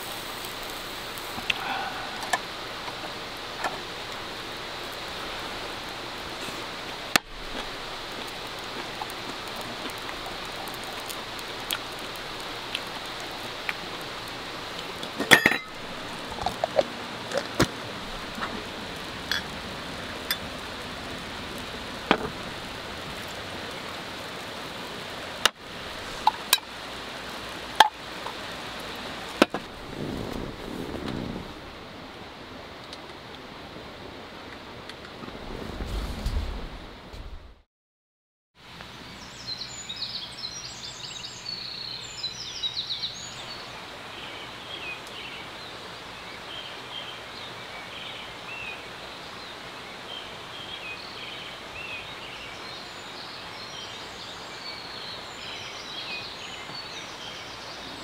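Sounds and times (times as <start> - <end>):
steady hiss: 0.0 - 37.3.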